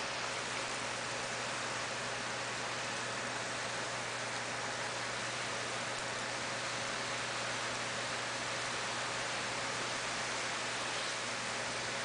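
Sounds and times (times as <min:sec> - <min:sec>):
heavy rain pouring: 0:00.0 - 0:12.0.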